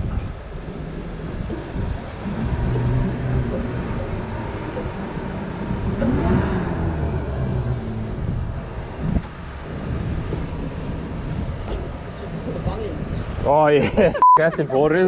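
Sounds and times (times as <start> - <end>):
engine running: 0.0 - 14.1.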